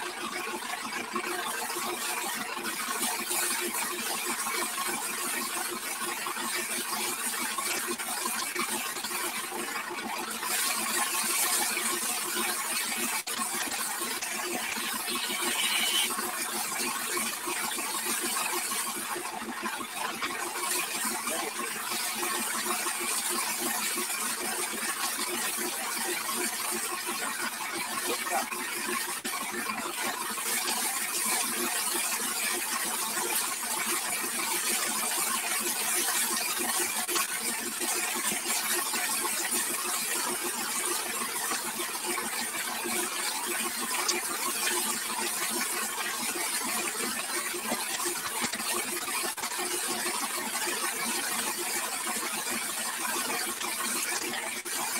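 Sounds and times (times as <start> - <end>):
hose water jet spraying: 10.5 - 16.3.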